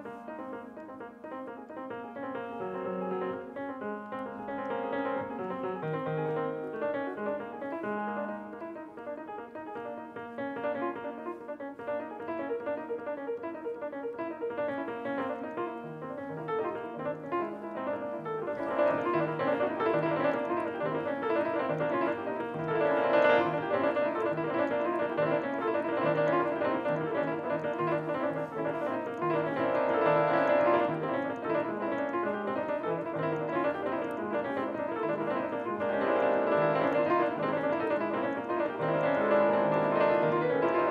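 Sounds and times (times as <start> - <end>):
solo grand piano: 0.0 - 40.9.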